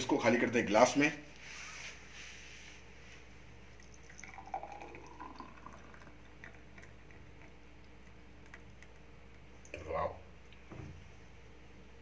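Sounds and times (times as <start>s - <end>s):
liquid pouring and splashing: 3.8s - 8.9s.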